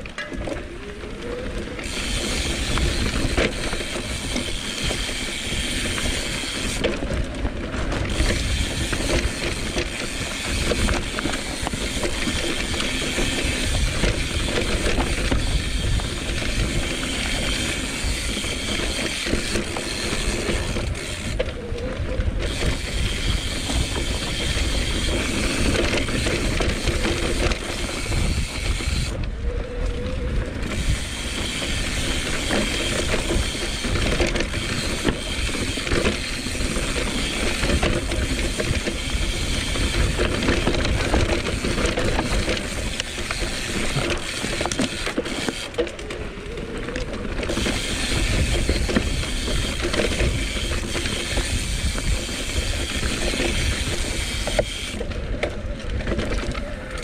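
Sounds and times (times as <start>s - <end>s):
bike rattling over bumps: 0.0s - 57.0s
tyres rolling over dirt: 0.0s - 57.0s
wind rumbling on microphone: 0.0s - 57.0s
freewheel ratchet clicking: 1.7s - 7.2s, 7.9s - 21.5s, 22.4s - 29.2s, 30.6s - 46.1s, 47.4s - 56.2s.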